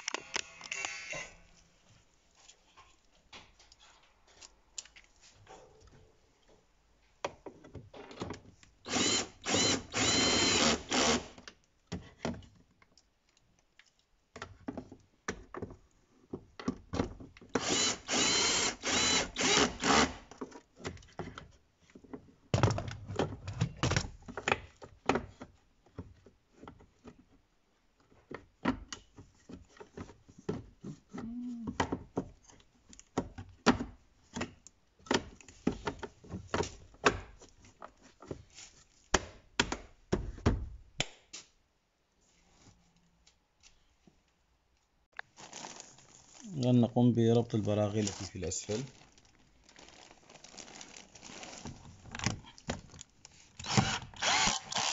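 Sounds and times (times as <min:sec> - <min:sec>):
cordless drill driving screws: 0:08.9 - 0:11.4, 0:17.5 - 0:20.2, 0:53.6 - 0:54.9.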